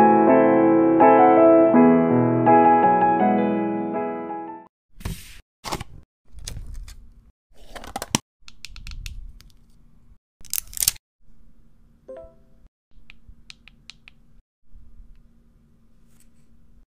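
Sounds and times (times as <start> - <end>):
packaging rustling: 10.4 - 11.0.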